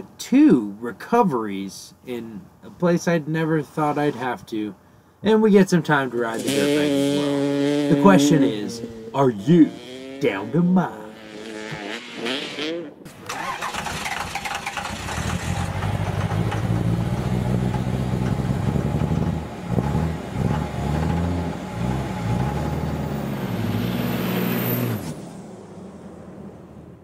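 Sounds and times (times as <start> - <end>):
motor engine revving: 6.3 - 25.4.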